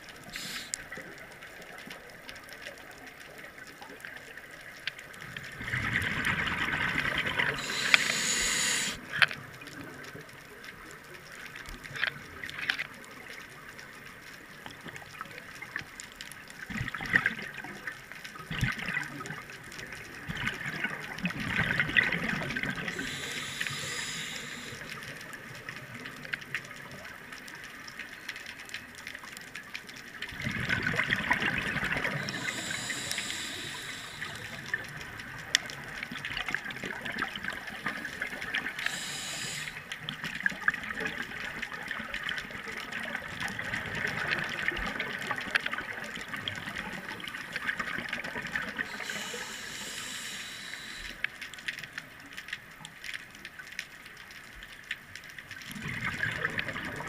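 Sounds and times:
regulator bubbles gurgling: 5.2s - 9.2s, 16.6s - 26.9s, 30.3s - 51.2s, 55.6s - 57.0s.

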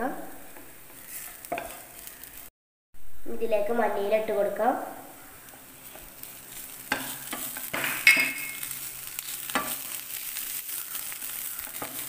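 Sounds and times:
onions sizzling in oil: 0.0s - 2.5s, 3.5s - 12.0s
spatula scraping pan: 0.4s - 2.4s, 5.5s - 12.0s.

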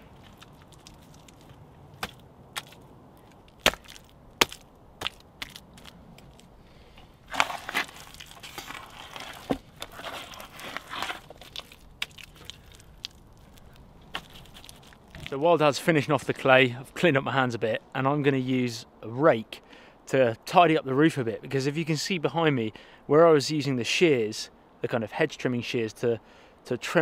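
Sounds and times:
hand squelching in wet clay: 7.3s - 15.4s.

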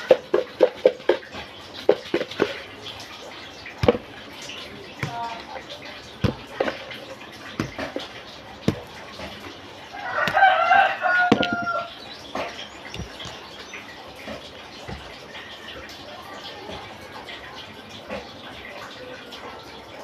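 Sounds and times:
rooster crowing: 9.9s - 11.9s.

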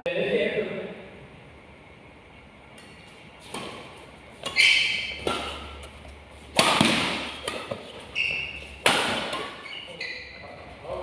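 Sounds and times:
rackets striking shuttlecock: 2.8s - 9.9s.

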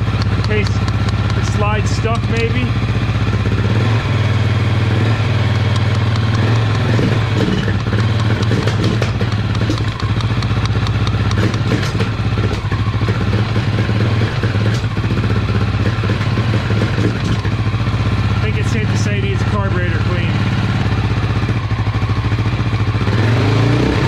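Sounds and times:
motorcycle engine idling: 0.0s - 23.8s
screwdriver tapping on metal: 5.7s - 7.0s, 7.6s - 12.0s.

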